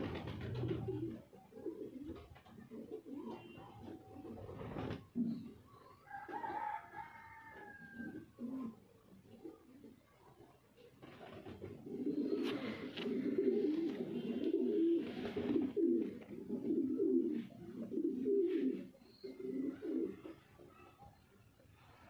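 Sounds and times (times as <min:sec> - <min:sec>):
pigeon cooing: 0:00.0 - 0:21.1.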